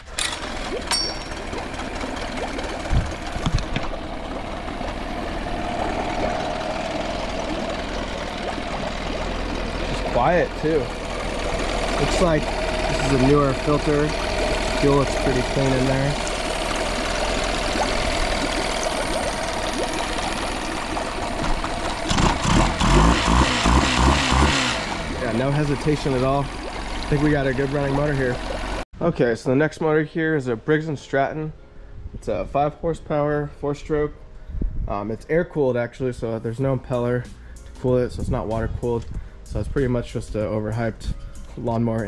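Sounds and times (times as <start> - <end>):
outboard motor idling: 0.0 - 28.9.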